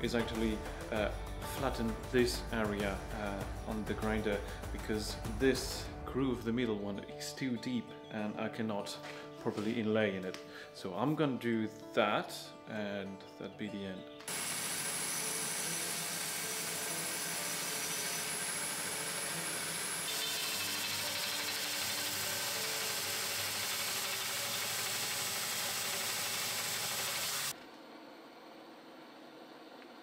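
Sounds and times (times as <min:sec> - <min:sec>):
belt grinder grinding steel: 0:14.3 - 0:27.5.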